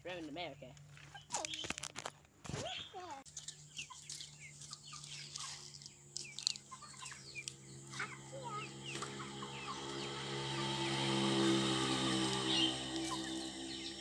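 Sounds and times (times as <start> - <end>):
hens clucking: 3.4 - 14.0
steady humming tone: 3.5 - 14.0.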